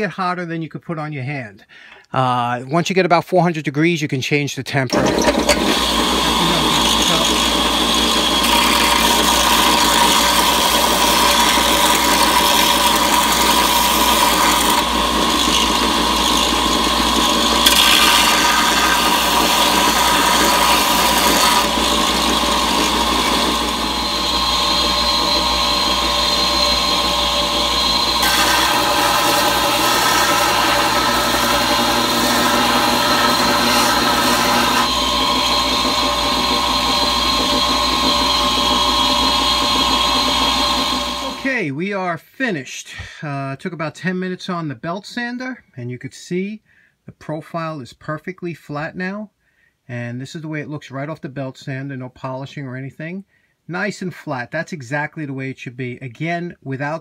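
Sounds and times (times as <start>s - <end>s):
belt sander motor whine: 4.9s - 41.5s.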